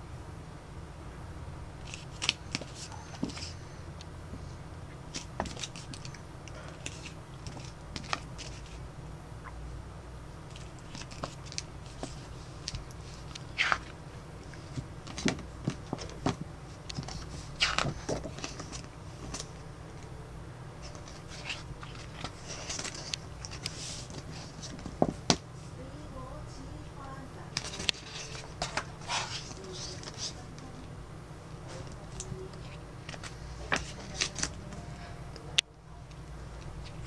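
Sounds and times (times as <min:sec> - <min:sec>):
steady low hum: 0:00.0 - 0:37.0
paper rustling and pages turning: 0:01.8 - 0:03.6, 0:05.1 - 0:08.9, 0:10.5 - 0:20.1, 0:20.8 - 0:25.8, 0:27.5 - 0:30.9, 0:31.6 - 0:35.1.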